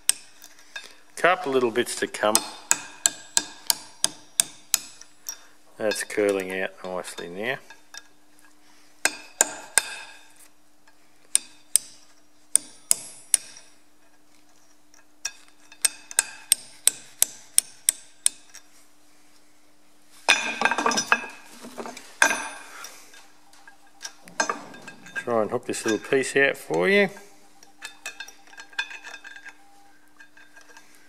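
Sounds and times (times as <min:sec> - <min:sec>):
hammer tapping steel punch: 0:02.3 - 0:05.4, 0:11.3 - 0:13.7.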